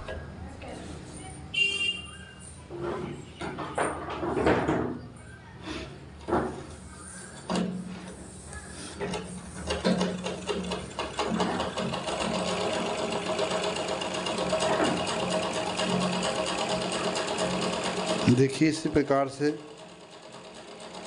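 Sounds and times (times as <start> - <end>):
overlock machine stitching: 9.1 - 21.0.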